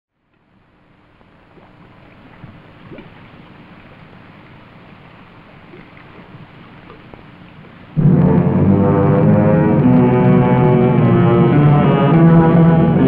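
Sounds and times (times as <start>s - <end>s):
water lapping: 0.4s - 13.0s
small splashes: 1.2s - 8.0s.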